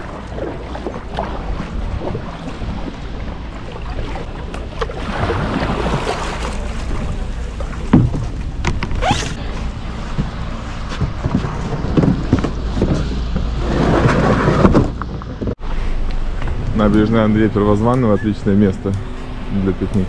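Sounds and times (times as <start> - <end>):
water splashing around kayak hull: 0.0 - 15.6
wind rumble on microphone: 0.0 - 20.0.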